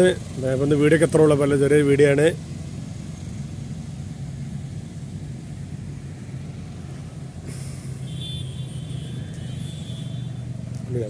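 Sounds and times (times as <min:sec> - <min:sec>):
vehicle engine humming: 0:00.0 - 0:11.0
hiss: 0:07.4 - 0:08.2.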